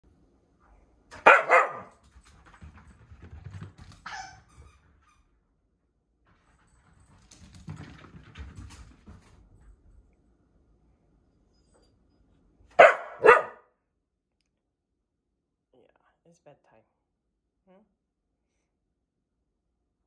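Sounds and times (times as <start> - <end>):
dog barking: 1.2 - 2.0, 12.7 - 13.7.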